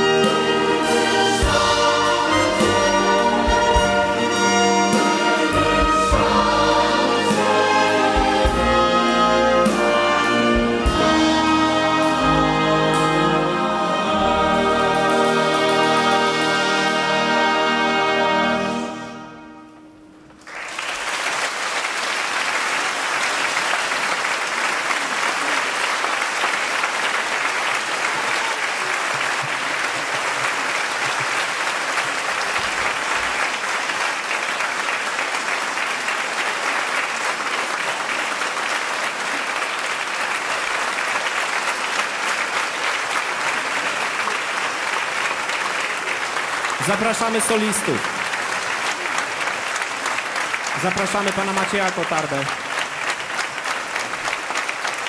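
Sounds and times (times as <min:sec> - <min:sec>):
large audience applauding: 0:20.3 - 0:55.0.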